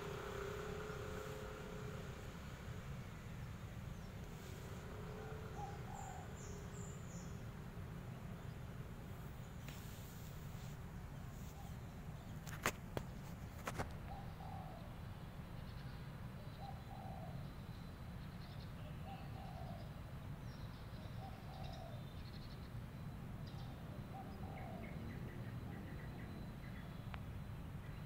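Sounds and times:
low outdoor rumble: 0.0 - 19.0
small birds chirping: 0.0 - 28.0
dove cooing: 4.4 - 6.9, 13.7 - 14.9, 21.2 - 22.0, 24.0 - 25.0.

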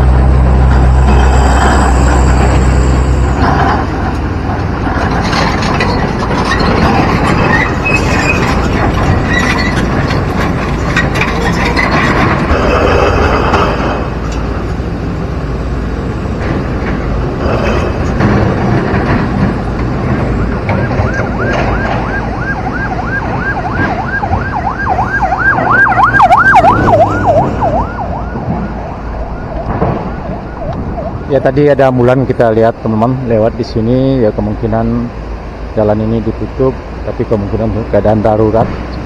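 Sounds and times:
excavator diesel engine: 0.0 - 39.0
rocks knocking and clanking: 3.4 - 14.5, 16.4 - 22.2.

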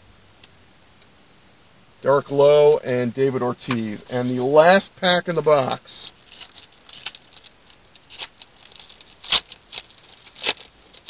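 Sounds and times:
wrapper crinkling and tearing: 6.1 - 11.0.

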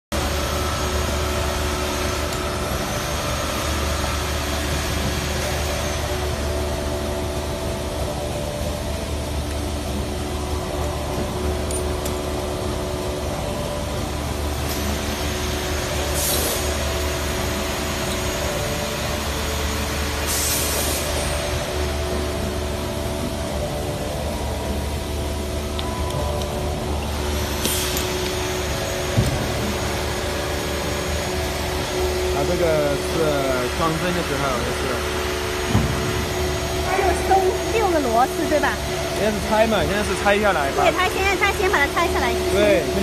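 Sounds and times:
workshop machinery humming: 0.1 - 43.0
air hissing: 16.0 - 16.8, 20.2 - 21.2.

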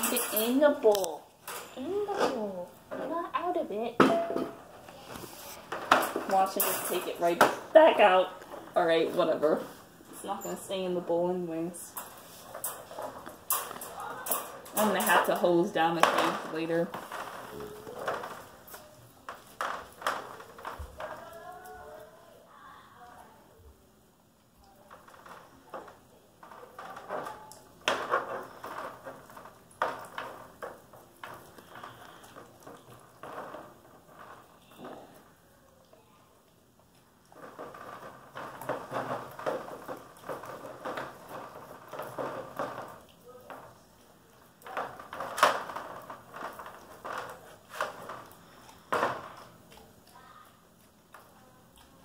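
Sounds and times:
puppy gnawing and licking bone: 35.7 - 52.0
puppy licking and gnawing bone: 46.8 - 52.0.

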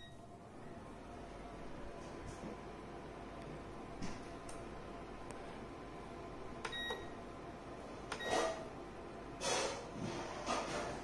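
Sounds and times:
heater humming: 0.0 - 11.0
control panel beeping: 6.6 - 7.2.

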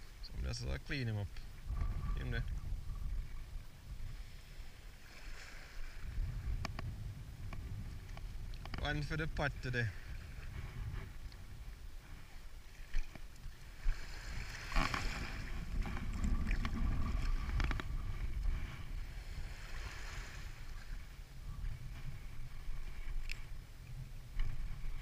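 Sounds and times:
wind on microphone: 0.0 - 25.0.

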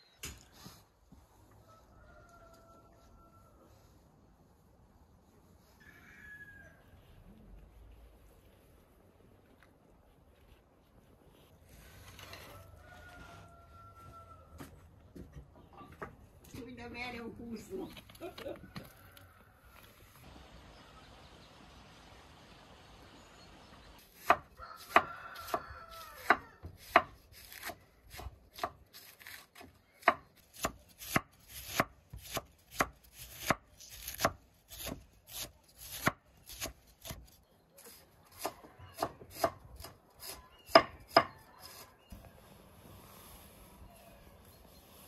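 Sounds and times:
knife cutting cabbage on board: 24.2 - 41.8.

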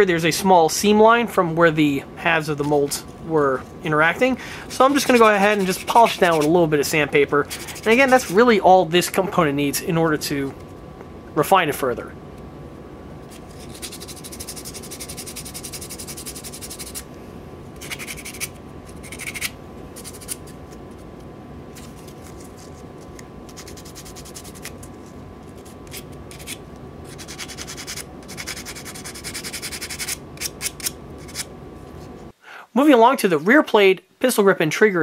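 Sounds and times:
sandpaper scratching metal: 4.7 - 8.5, 13.4 - 17.0, 17.8 - 20.6, 23.5 - 24.8, 25.6 - 31.5.

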